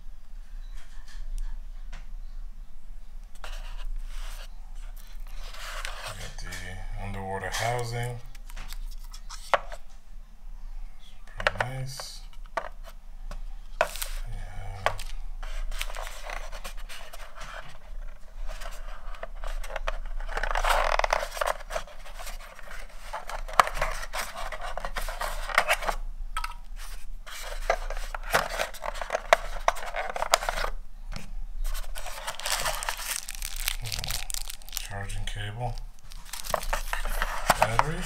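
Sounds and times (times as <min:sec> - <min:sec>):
cardboard packaging scraping: 0:13.8 - 0:26.0, 0:26.8 - 0:30.8, 0:31.6 - 0:35.1, 0:36.0 - 0:38.0.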